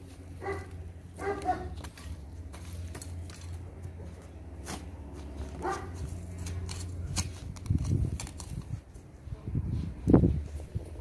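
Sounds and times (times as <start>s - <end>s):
steady low hum: 0.0s - 11.0s
dog barking: 0.4s - 1.8s, 5.6s - 6.0s
lawn edger scraping turf: 4.6s - 8.8s.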